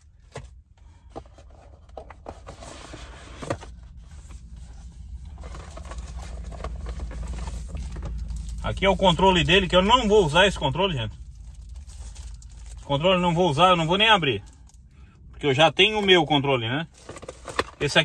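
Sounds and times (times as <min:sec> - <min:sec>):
low steady hum: 0:00.0 - 0:18.0
packaging clicks and scrapes: 0:00.2 - 0:09.2, 0:16.9 - 0:17.9.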